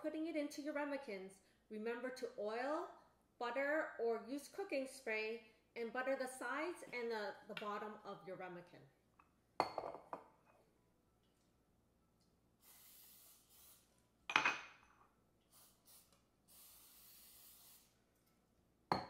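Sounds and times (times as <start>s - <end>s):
objects knocking on counter: 9.6s - 10.3s
aerosol spray hissing: 12.6s - 13.9s, 15.5s - 18.0s.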